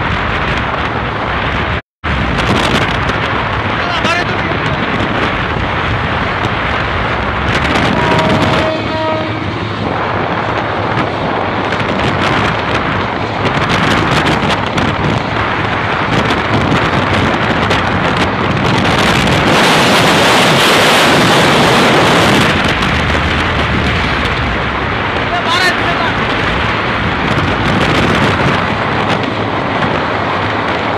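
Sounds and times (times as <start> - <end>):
diesel train running: 0.0 - 30.9
motorbike road noise: 0.0 - 30.9
wind buffeting microphone: 0.0 - 30.9
horn sounding: 7.6 - 9.8.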